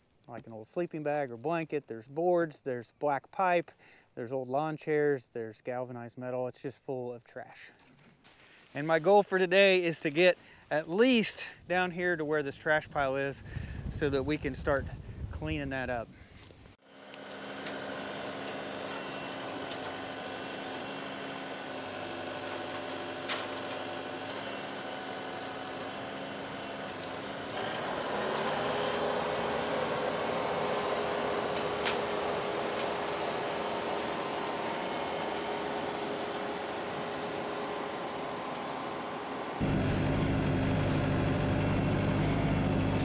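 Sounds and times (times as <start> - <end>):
tractor diesel engine running: 16.8 - 43.0
sharp cracks: 27.0 - 39.4.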